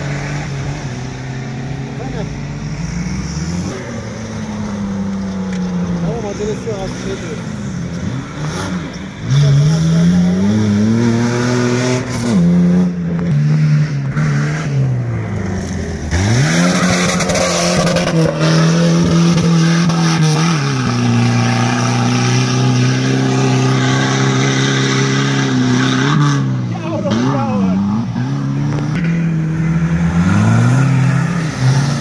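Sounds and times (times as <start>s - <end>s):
engine revving hard: 16.1s - 32.0s.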